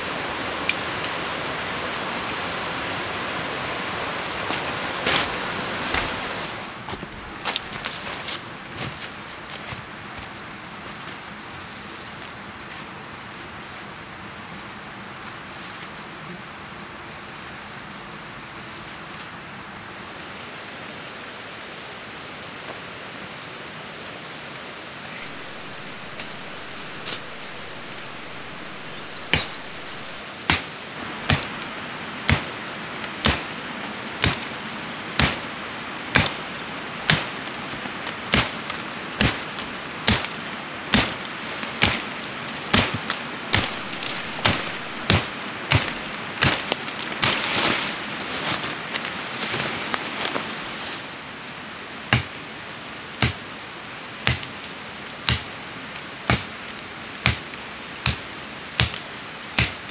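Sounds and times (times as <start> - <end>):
flowing water: 0.0 - 6.8, 24.4 - 46.3
faint high chirps: 25.2 - 30.2, 43.6 - 45.1.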